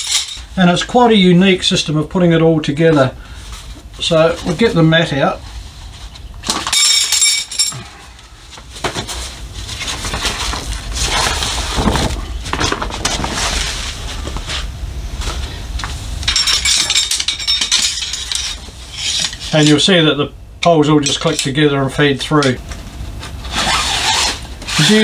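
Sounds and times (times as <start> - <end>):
metal poles clinking: 0.0 - 0.4, 6.5 - 7.9, 16.2 - 19.8
fabric rustling and flapping: 8.4 - 15.5.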